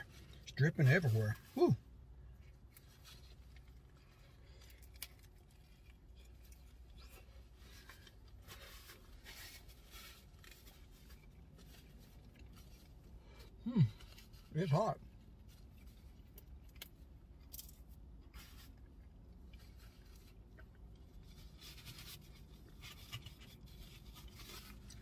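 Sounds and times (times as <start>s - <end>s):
chewing crunchy food: 2.4s - 14.0s.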